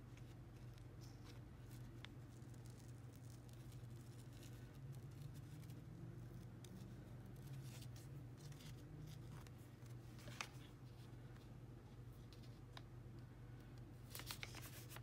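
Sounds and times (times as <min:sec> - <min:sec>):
low steady hum: 0:00.0 - 0:15.0
tape rustling and clicking: 0:13.6 - 0:15.0.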